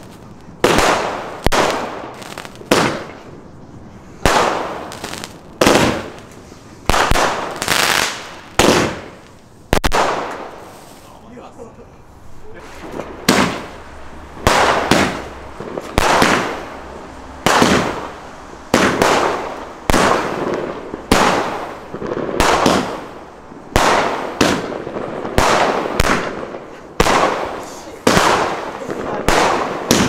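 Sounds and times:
fireworks bursting: 0:00.0 - 0:30.0.

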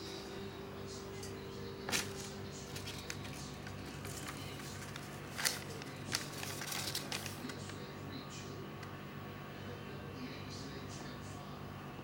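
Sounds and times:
steady low hum: 0:00.0 - 0:12.0
newspaper crinkling and rustling: 0:01.8 - 0:07.8.

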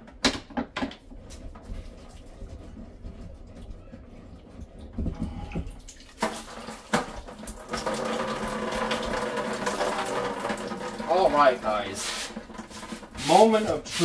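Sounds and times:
sharp plastic knocks: 0:00.0 - 0:01.1
water pouring and splashing: 0:01.2 - 0:14.0.

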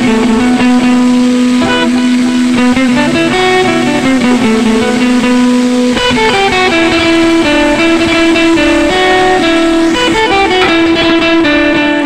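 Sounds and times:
plucked guitar melody: 0:00.0 - 0:12.0.

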